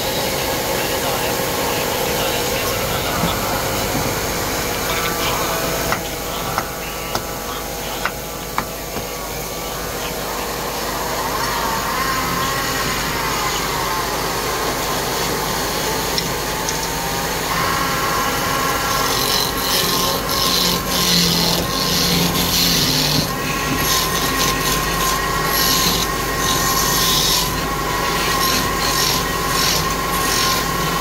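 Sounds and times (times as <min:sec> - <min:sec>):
wood lathe whining: 0:00.0 - 0:31.0
chisel scraping spinning wood: 0:10.0 - 0:31.0.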